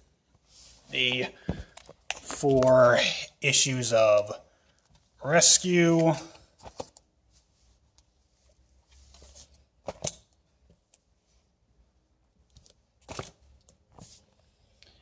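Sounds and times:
comic books rustling: 0.4 - 3.1, 4.9 - 10.8, 12.5 - 14.6.

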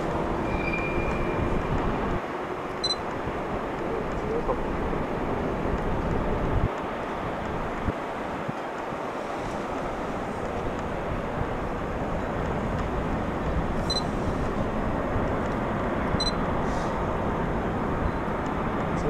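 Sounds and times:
train approaching rushing noise: 0.0 - 17.9
short high beeps: 2.8 - 3.0, 13.9 - 14.1, 16.2 - 16.4.

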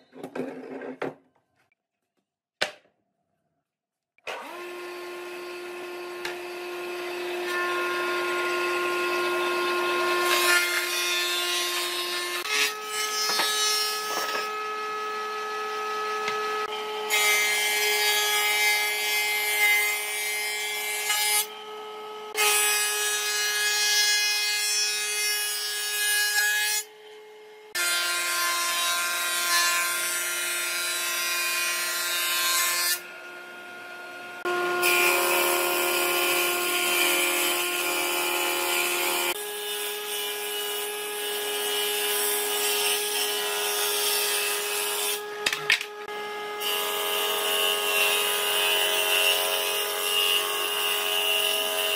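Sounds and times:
planer cutterhead whine: 4.2 - 11.2.

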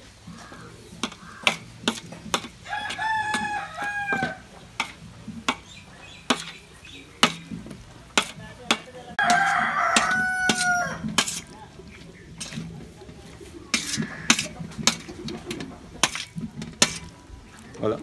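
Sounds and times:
rooster crowing: 2.6 - 4.5, 9.2 - 11.2.

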